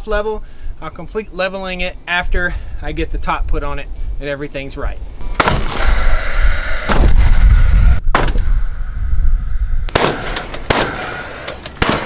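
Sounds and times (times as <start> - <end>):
nail gun bangs: 8.2 - 8.5, 9.9 - 12.0.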